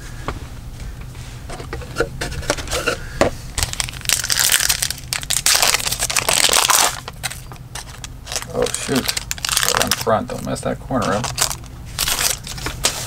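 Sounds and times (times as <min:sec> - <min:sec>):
wrapper crinkling and tearing: 0:03.6 - 0:13.0.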